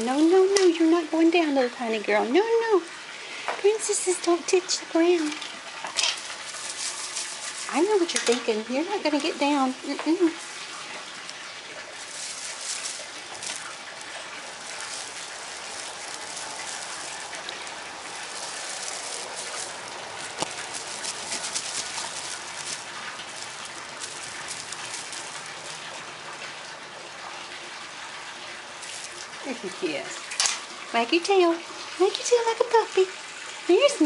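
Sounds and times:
foil toy rustling and crinkling: 0:00.0 - 0:01.2, 0:03.8 - 0:26.8, 0:28.5 - 0:30.8
steady hiss: 0:00.0 - 0:31.1.

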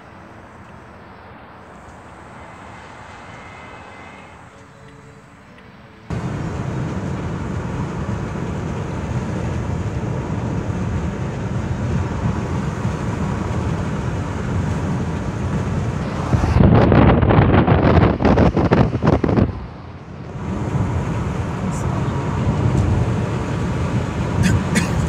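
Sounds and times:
car road and engine rumble: 0:00.0 - 0:25.0
wind buffeting microphone: 0:06.1 - 0:24.4.

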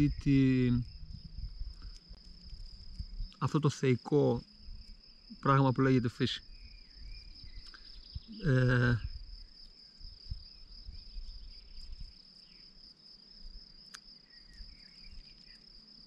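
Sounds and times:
man's voice: 0:00.0 - 0:00.8, 0:03.4 - 0:04.4, 0:05.4 - 0:06.4, 0:08.4 - 0:09.1
insects trilling: 0:00.0 - 0:16.0.

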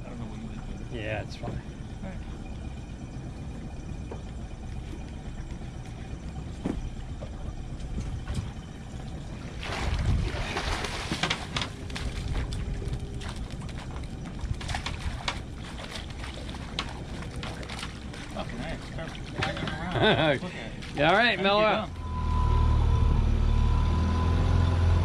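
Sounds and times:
boat motor running: 0:00.0 - 0:25.0
wind on microphone: 0:09.4 - 0:15.8.

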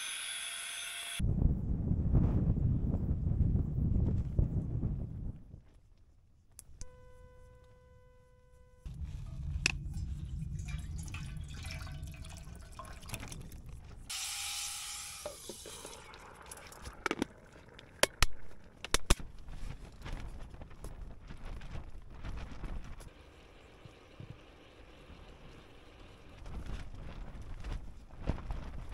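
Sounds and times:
steady buzzing tone: 0:06.8 - 0:11.4
thick liquid pouring: 0:08.9 - 0:14.1, 0:15.2 - 0:19.6.

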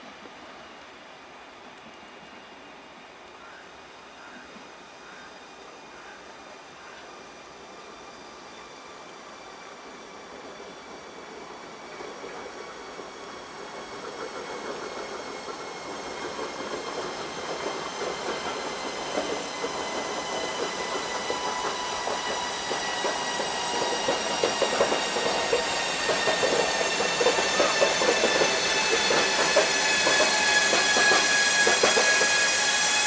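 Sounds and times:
train wheels squealing: 0:03.4 - 0:33.0
wheels clicking over rail joints: 0:12.0 - 0:32.6.

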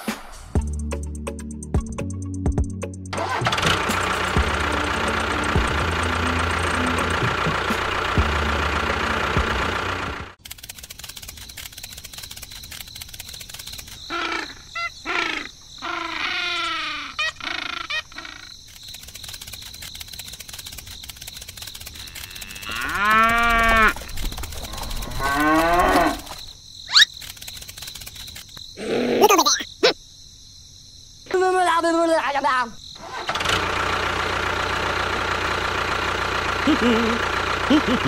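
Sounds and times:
cattle mooing: 0:22.1 - 0:24.0, 0:24.7 - 0:26.4.

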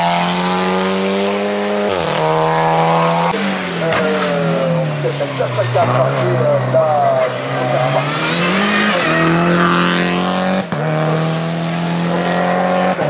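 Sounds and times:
race car engine accelerating: 0:00.0 - 0:13.0.

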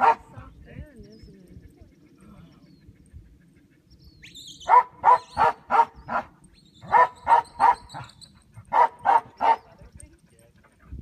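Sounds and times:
dog barking: 0:00.0 - 0:00.4, 0:04.6 - 0:09.7.

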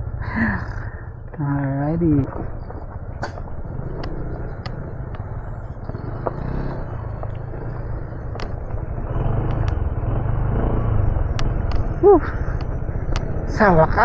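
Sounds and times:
scooter engine running: 0:00.0 - 0:14.0
tyres rumbling on rough ground: 0:00.0 - 0:14.0
sharp clicks: 0:03.1 - 0:10.3, 0:11.2 - 0:13.4.

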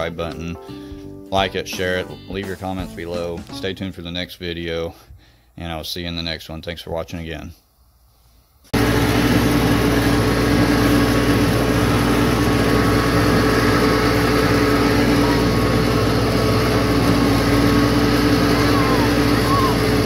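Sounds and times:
tractor engine running: 0:08.8 - 0:20.0.

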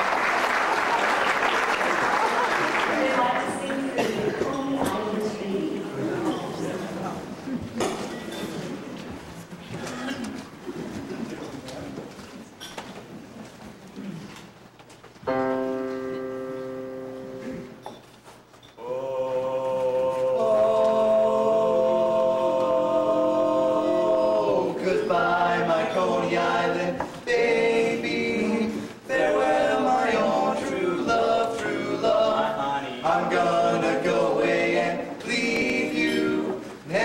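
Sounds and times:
male quartet singing in harmony: 0:18.8 - 0:37.0.

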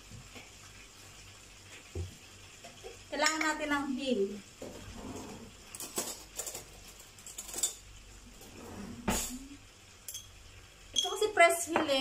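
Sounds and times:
spoon clinking against glass jar: 0:10.1 - 0:10.3.

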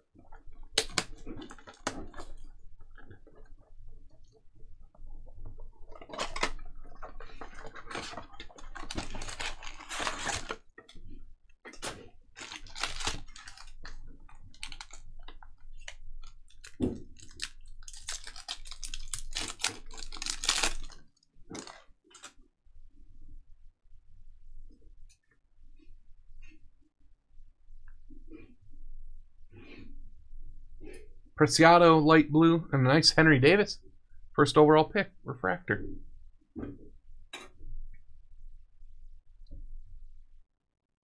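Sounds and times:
foil wrappers crinkling and tearing: 0:05.9 - 0:10.8, 0:11.8 - 0:22.4
handling of cards: 0:05.9 - 0:11.0, 0:11.7 - 0:22.4.

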